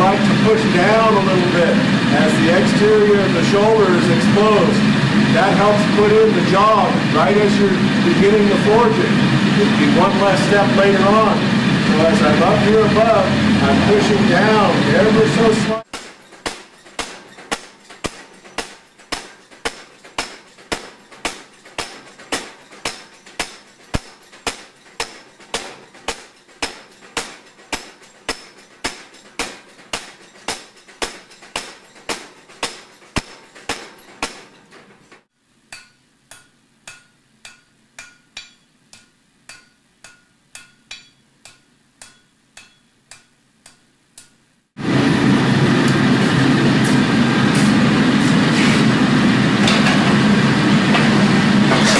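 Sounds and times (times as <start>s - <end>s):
loud steady rushing noise: 0.0s - 15.9s, 44.8s - 51.9s
hammer striking steel on anvil: 12.1s - 44.4s.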